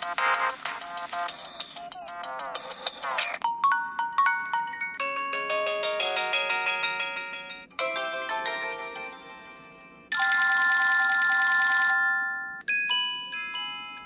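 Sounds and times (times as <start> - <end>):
loud steady electronic tone: 0.0 - 3.4
chiming electronic ringtone melodies: 0.0 - 14.0.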